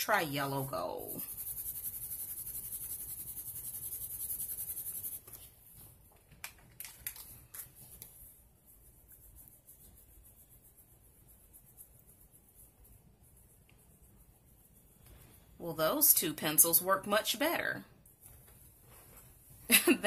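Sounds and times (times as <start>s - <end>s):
pencil scribbling on paper: 0.0s - 5.6s, 7.8s - 16.9s.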